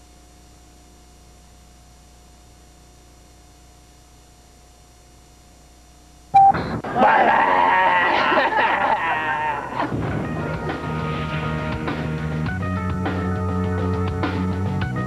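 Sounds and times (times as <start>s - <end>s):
faint steady hum: 0.0s - 15.0s
sudden loud sound: 9.8s - 10.9s.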